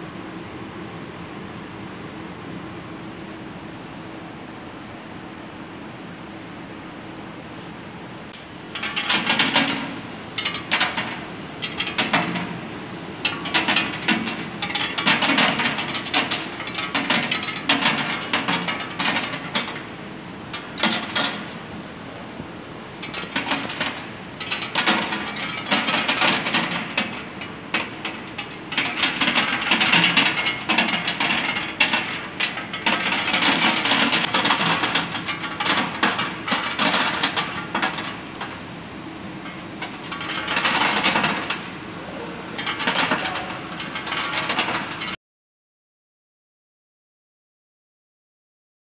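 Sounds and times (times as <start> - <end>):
peanuts rattling on metal trays: 8.8 - 19.9, 23.0 - 38.6, 39.4 - 41.7, 42.5 - 45.1.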